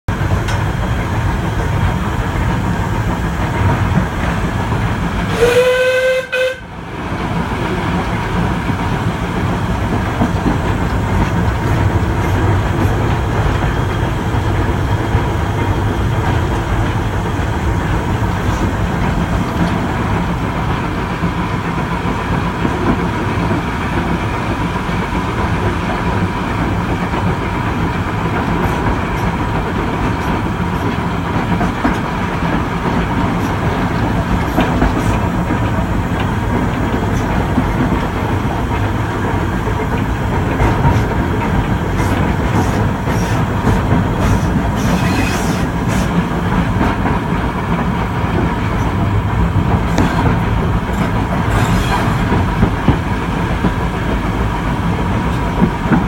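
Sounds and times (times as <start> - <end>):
steam locomotive rumble and rattle: 0.0 - 56.0
steam whistle: 5.3 - 6.7.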